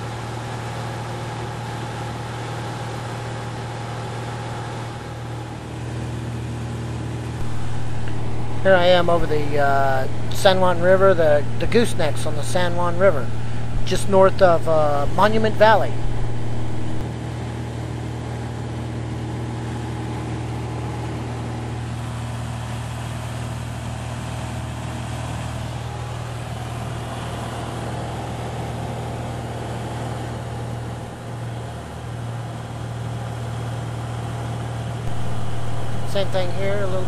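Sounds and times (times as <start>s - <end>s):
light aircraft engine and propeller: 0.0s - 37.0s
rush of airflow: 13.2s - 14.0s, 15.0s - 17.0s.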